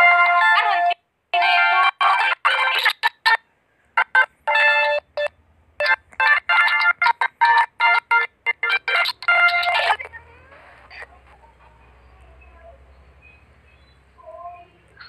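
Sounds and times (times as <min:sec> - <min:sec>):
electronic ringtone melody: 0:00.0 - 0:03.3, 0:04.0 - 0:10.0.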